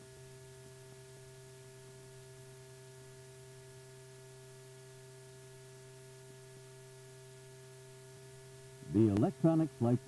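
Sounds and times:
faint electrical hum: 0:00.0 - 0:10.0.

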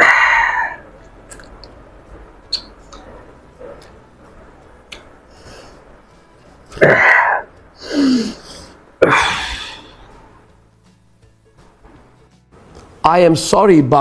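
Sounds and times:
man groaning: 0:09.0 - 0:10.0.

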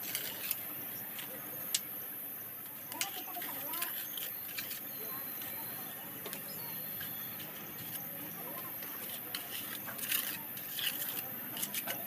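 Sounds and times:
trowel scraping and tapping mortar: 0:02.9 - 0:05.6, 0:06.2 - 0:12.0.

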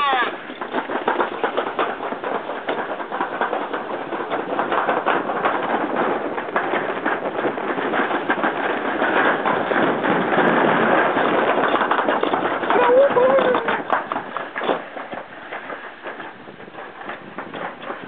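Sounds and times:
sled rattling down metal chute: 0:00.0 - 0:18.0.

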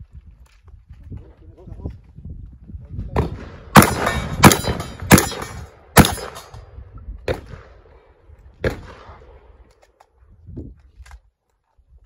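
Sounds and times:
shotgun shots with echo: 0:03.2 - 0:06.6, 0:08.6 - 0:09.5.

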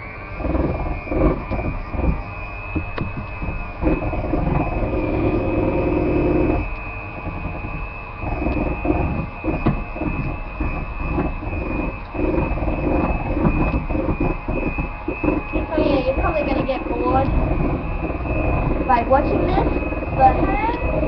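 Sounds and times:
electric hand mixer whine: 0:00.0 - 0:21.0.

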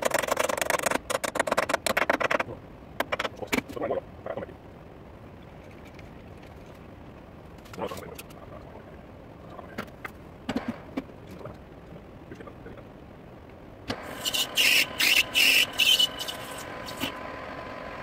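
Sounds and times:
lathe whining: 0:13.9 - 0:18.0
loud harsh bursts: 0:14.0 - 0:17.1.

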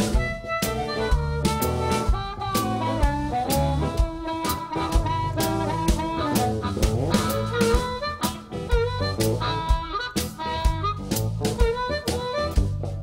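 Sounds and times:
drum kit beat: 0:00.0 - 0:13.0
electric bass line: 0:00.0 - 0:13.0.

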